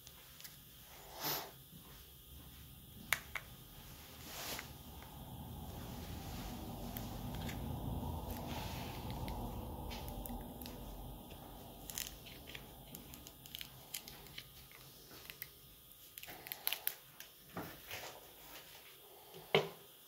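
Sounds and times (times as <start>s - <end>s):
glue crackling and creaking: 9.1s - 17.0s.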